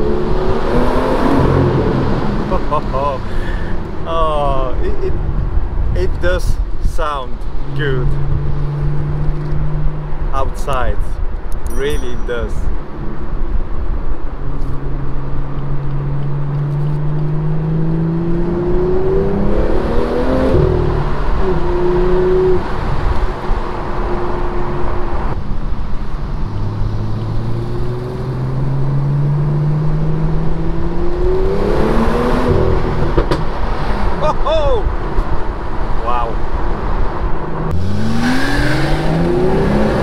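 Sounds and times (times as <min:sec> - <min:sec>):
car engine accelerating: 0:00.0 - 0:05.5, 0:14.4 - 0:40.0.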